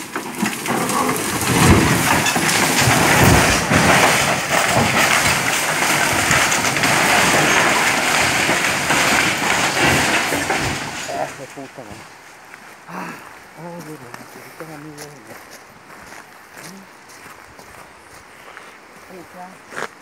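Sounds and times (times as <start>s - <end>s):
metal crashing and brush breaking: 0.0s - 12.0s
heavy thuds: 0.2s - 12.1s.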